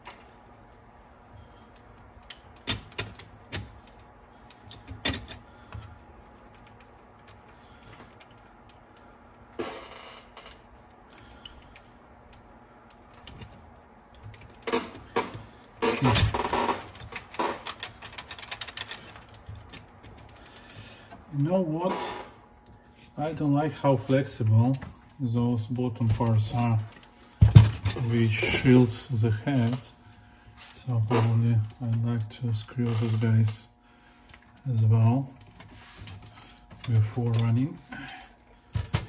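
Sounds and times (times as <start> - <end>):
clatter of parts: 13.1 - 20.8
small mechanism parts clicking: 16.0 - 20.4.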